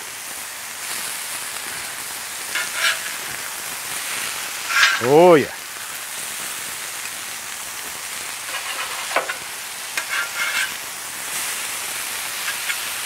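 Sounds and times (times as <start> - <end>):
food sizzling on a griddle: 0.0 - 13.0
metal spatulas scraping and clinking: 2.5 - 3.3, 4.6 - 5.2, 8.5 - 9.4, 10.0 - 10.8, 12.4 - 12.9.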